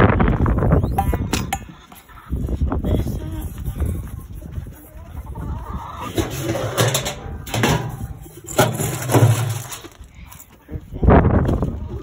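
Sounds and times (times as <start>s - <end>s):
metallic clatters and knocks: 6.2s - 10.0s.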